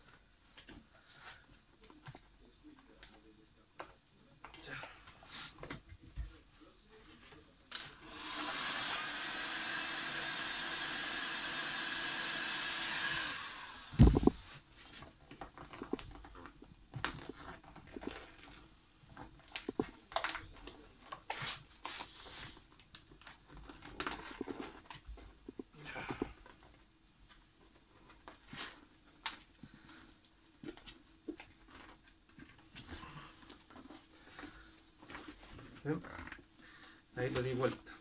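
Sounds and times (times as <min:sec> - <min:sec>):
hot-air blower running: 0:08.0 - 0:14.4
hands tapping and rustling film: 0:14.0 - 0:36.4.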